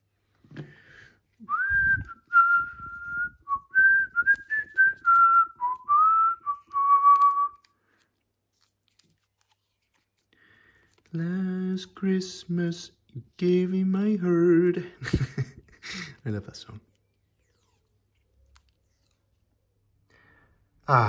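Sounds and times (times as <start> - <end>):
man whistling a tune: 1.4 - 7.6.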